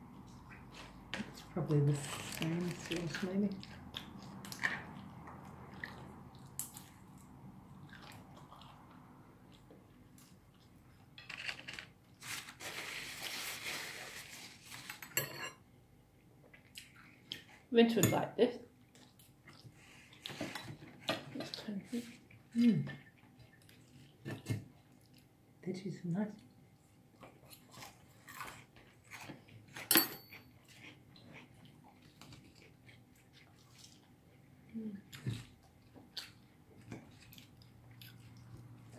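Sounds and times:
crackly eating noises: 0.0 - 15.0, 15.6 - 17.7, 18.6 - 38.9
scraping or rustling: 1.9 - 3.2, 11.2 - 15.2
cutlery scraping on plates: 14.9 - 15.6
metal clinking on china: 29.9 - 30.3.

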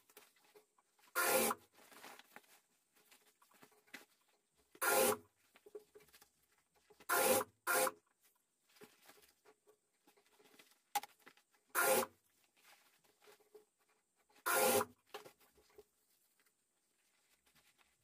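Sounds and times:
fabric rustling: 0.0 - 4.7, 8.2 - 11.6, 12.2 - 14.0, 15.1 - 18.0
sewing machine stitching: 14.4 - 14.9.

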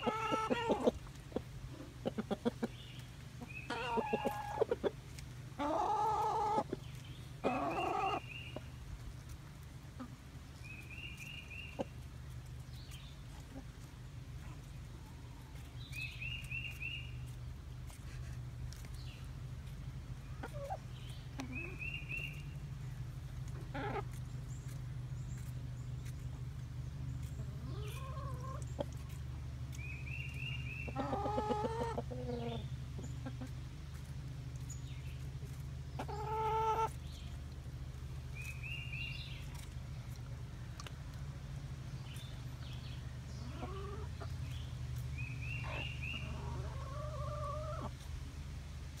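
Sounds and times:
chicken calls: 0.0 - 8.8, 20.1 - 40.9, 42.0 - 48.0
chickens clucking: 0.0 - 49.0
steady low hum: 0.0 - 49.0.

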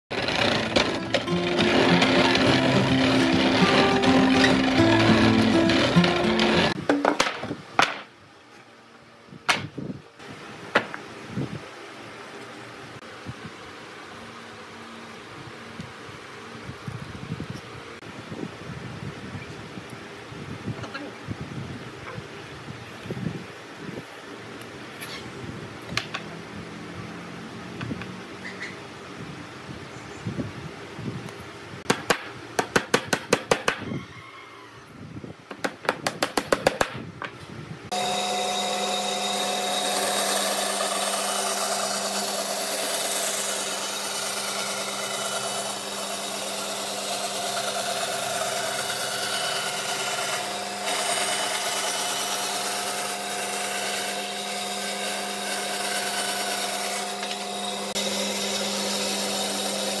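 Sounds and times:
band saw cutting wood: 0.0 - 6.8, 37.9 - 60.0.

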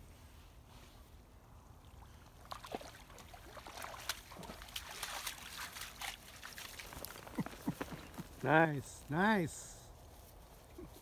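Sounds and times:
water splashing and trickling: 1.6 - 9.1.

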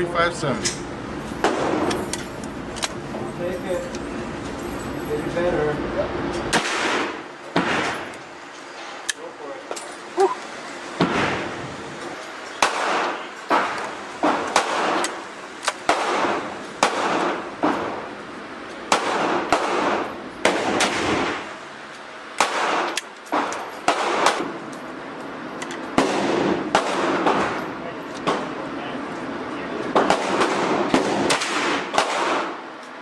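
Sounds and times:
gunshots at indoor range: 1.4 - 2.0, 6.5 - 8.1, 11.0 - 11.6, 12.6 - 18.0, 18.9 - 21.6, 22.4 - 24.6, 26.0 - 28.5, 29.9 - 32.7.

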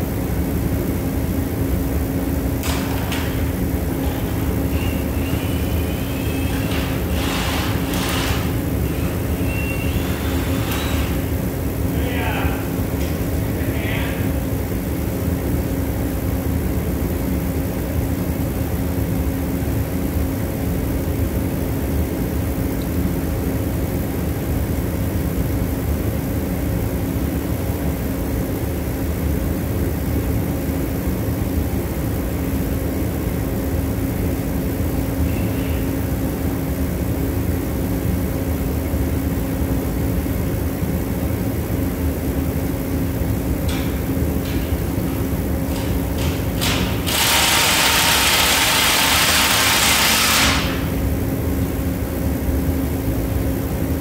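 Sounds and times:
machine drone: 0.0 - 15.5, 33.7 - 40.7, 41.4 - 53.9.

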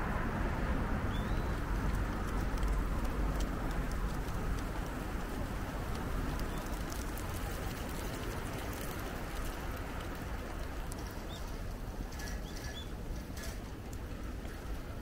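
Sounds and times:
steady rain falling: 0.1 - 15.0.

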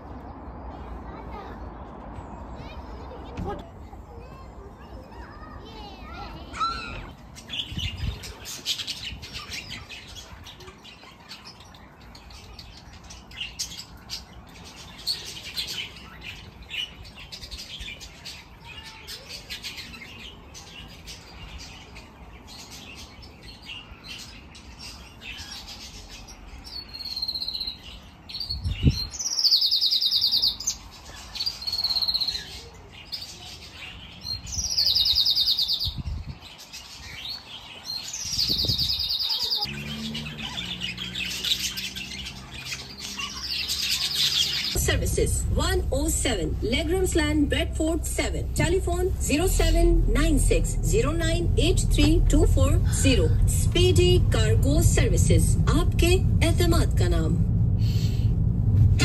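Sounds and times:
small birds chirping: 0.0 - 57.1
loud harsh bird calls: 4.8 - 44.8.

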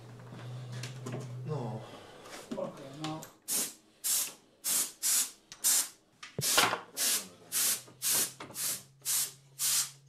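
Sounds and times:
paint spray gun hissing bursts: 3.5 - 10.0.

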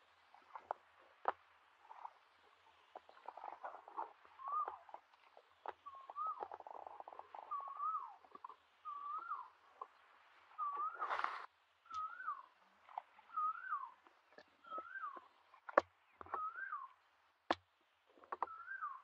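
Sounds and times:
bird calling: 1.8 - 17.1, 18.2 - 19.0
brief rustle: 10.7 - 12.2.

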